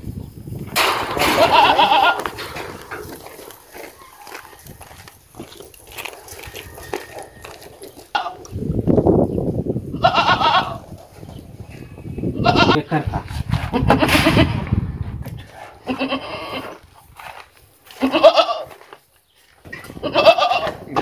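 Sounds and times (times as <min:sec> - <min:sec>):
goats bleating: 0:01.2 - 0:02.4, 0:10.0 - 0:10.8, 0:12.4 - 0:12.9, 0:15.8 - 0:16.8, 0:17.9 - 0:18.8, 0:20.0 - 0:21.0.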